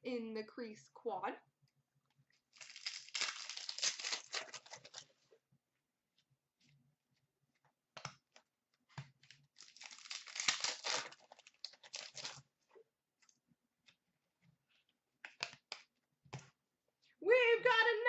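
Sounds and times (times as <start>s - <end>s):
plastic wrapper tearing and crinkling: 2.6s - 5.1s, 9.2s - 12.4s.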